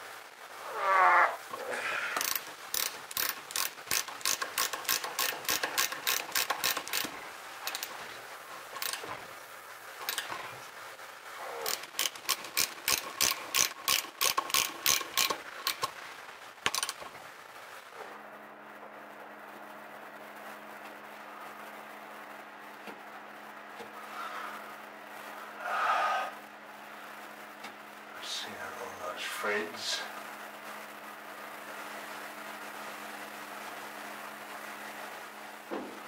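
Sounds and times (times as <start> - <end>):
ratchet wrench clicking: 2.2 - 8.0, 8.8 - 9.0, 10.0 - 10.4, 11.7 - 15.9, 16.6 - 17.1.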